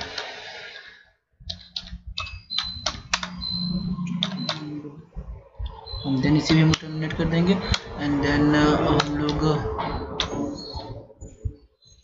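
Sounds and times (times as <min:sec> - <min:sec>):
computer keyboard typing: 0:01.5 - 0:04.8.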